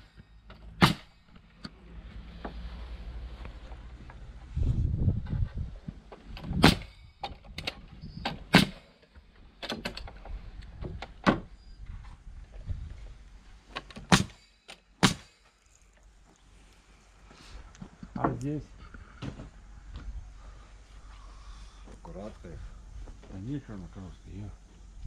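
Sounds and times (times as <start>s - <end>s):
nail gun firing into wood: 0.8s - 1.1s, 6.4s - 7.7s, 8.3s - 8.9s, 14.0s - 15.4s.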